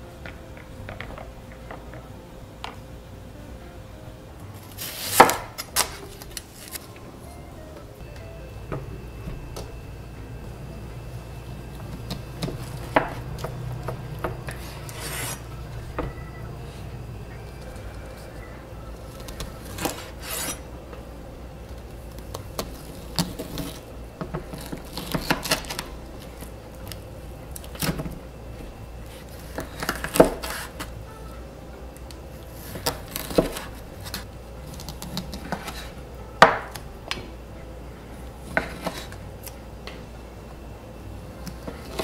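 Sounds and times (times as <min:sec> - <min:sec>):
knife sawing through meat: 0:14.5 - 0:15.4, 0:19.7 - 0:20.6.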